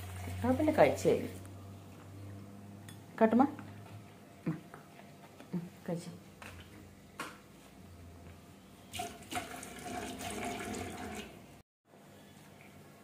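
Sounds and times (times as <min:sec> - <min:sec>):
water running: 0:00.0 - 0:01.3, 0:08.9 - 0:11.5.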